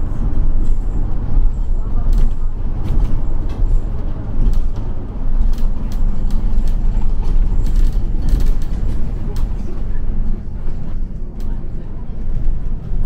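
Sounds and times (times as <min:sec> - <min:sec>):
bus engine and road rumble: 0:00.0 - 0:13.0
light clicks and rattles: 0:02.1 - 0:10.0.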